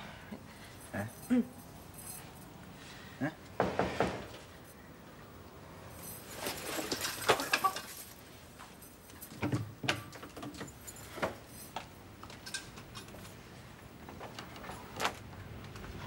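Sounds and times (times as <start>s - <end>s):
clothing rustle: 5.9s - 9.4s.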